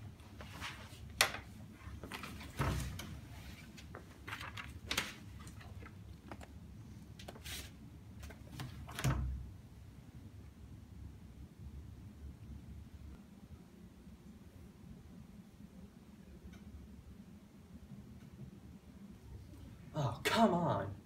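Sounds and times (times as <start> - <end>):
clicks and rustles of handling: 0.2 - 9.1.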